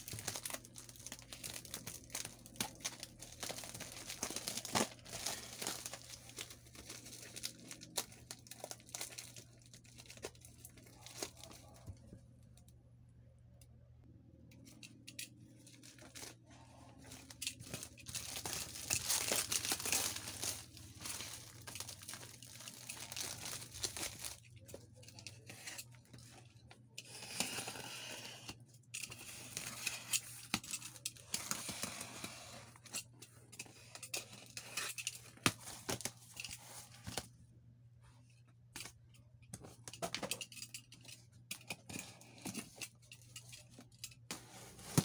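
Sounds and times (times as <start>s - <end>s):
plastic bag tearing and crinkling: 0.0s - 10.2s, 17.2s - 24.6s.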